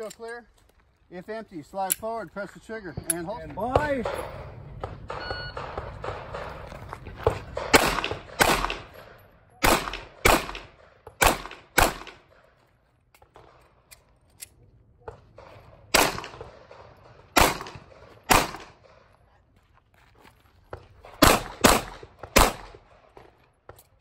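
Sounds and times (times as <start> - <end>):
pistol shots: 3.8 - 12.4, 15.4 - 19.0, 21.1 - 22.9.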